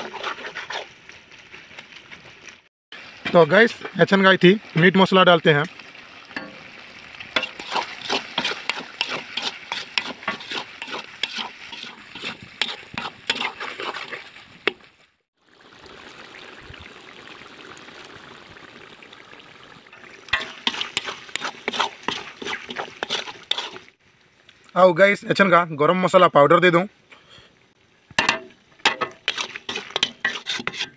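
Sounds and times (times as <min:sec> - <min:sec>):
spatula scraping a metal wok: 0:00.0 - 0:01.0, 0:07.4 - 0:14.8, 0:20.3 - 0:23.9, 0:28.3 - 0:30.9
food sizzling: 0:00.0 - 0:25.9, 0:27.0 - 0:30.9.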